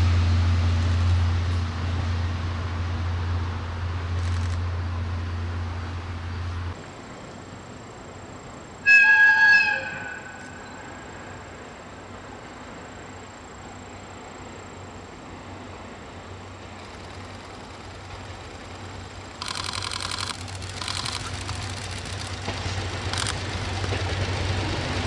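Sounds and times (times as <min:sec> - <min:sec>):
train rumbling: 0:00.0 - 0:25.0
high-pitched locomotive whistle: 0:08.8 - 0:11.4.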